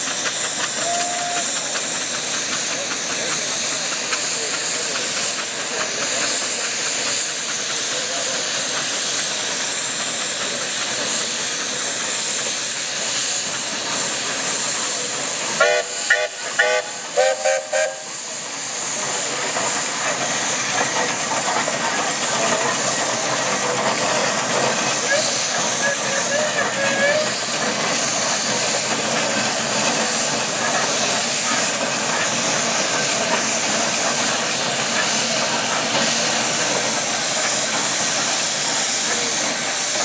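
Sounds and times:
steam engine hissing: 0.0 - 40.0
steam whistle toots: 0.6 - 1.6, 15.5 - 18.2, 25.0 - 27.4.

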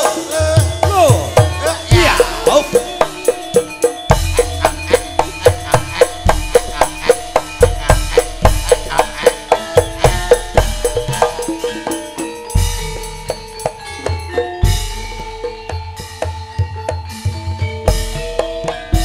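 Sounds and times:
metallophones playing melody: 0.0 - 19.0.

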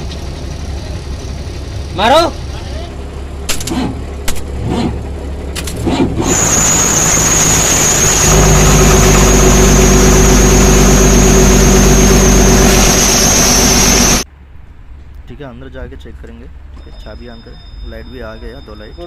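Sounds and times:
diesel engine starting: 0.0 - 14.3
high steady whine: 0.0 - 15.2.

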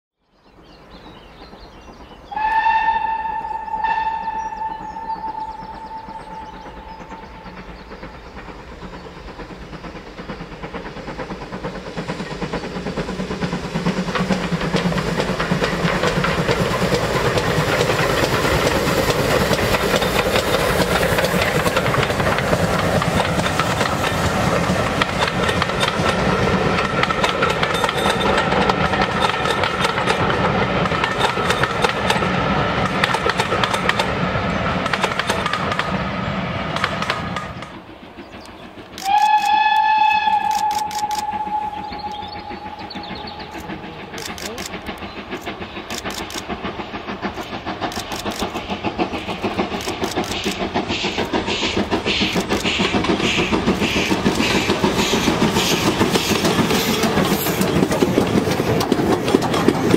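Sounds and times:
steam locomotive passing: 0.2 - 59.9
train wheels clattering on rails: 0.4 - 59.9
steam hiss: 1.3 - 59.9
train whistle: 2.3 - 7.7, 39.0 - 44.5.

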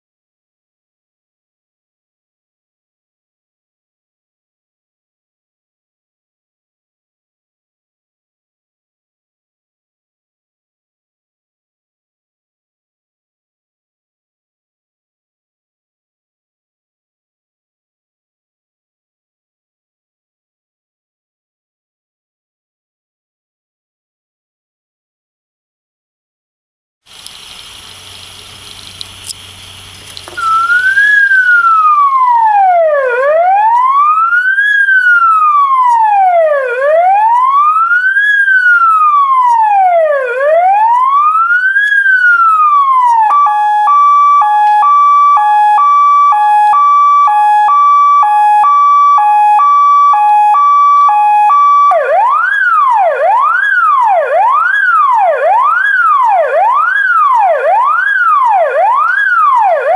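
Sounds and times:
electronic siren wailing: 30.2 - 59.9.

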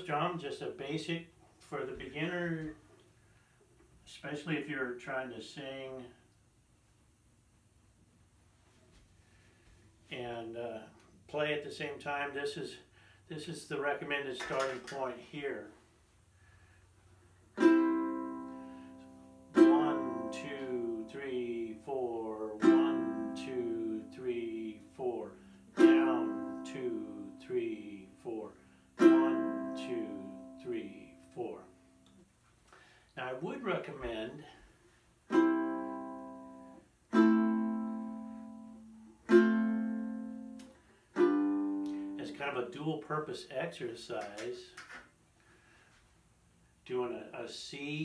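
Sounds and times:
ukulele strums: 17.5 - 21.8, 22.6 - 25.0, 25.7 - 27.8, 29.0 - 31.2, 35.3 - 42.4.

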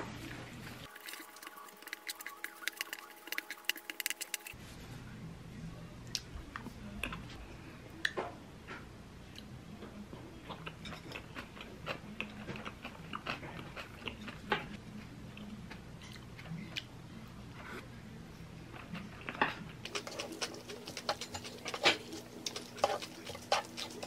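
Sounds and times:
close-up chewing: 0.8 - 4.6, 10.5 - 14.8, 18.8 - 24.0.

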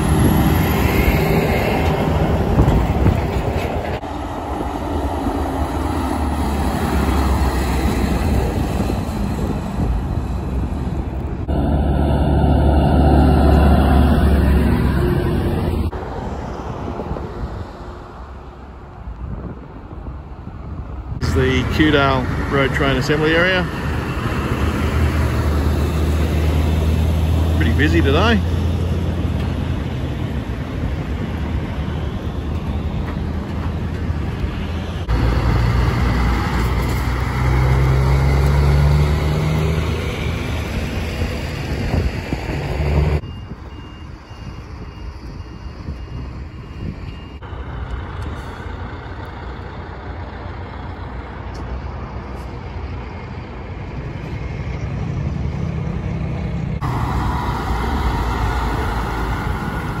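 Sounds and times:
diesel truck engines running: 0.0 - 60.0
truck reversing beeper: 21.2 - 26.8, 43.1 - 49.0.

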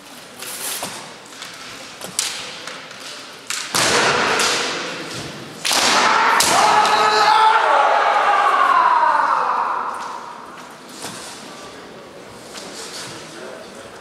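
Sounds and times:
fencers yelling: 5.8 - 10.6.

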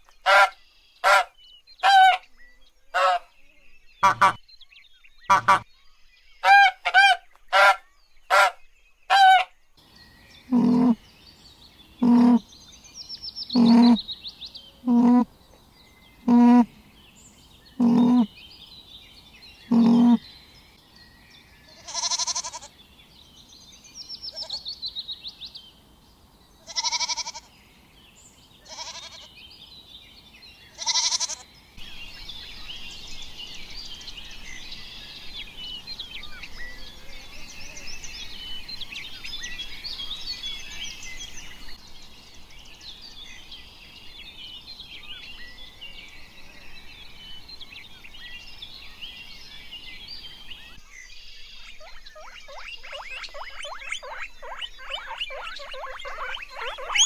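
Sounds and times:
goat bleating: 10.5 - 11.0, 13.6 - 14.0, 17.8 - 18.3, 19.7 - 20.2, 21.8 - 22.7, 26.7 - 27.5, 28.7 - 29.3, 30.8 - 31.4
small high chirps and squeaks: 13.6 - 14.0, 17.8 - 18.3, 19.7 - 20.2, 51.8 - 57.0.

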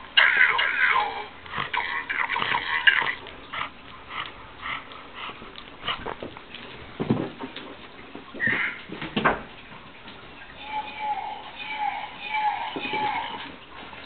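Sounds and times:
dog breathing noisily: 1.4 - 6.4.

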